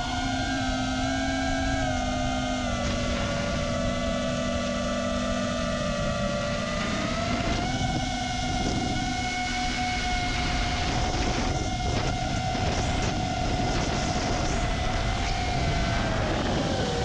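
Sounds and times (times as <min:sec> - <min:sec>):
drone motors whining: 0:00.0 - 0:17.0
wind noise: 0:00.0 - 0:17.0.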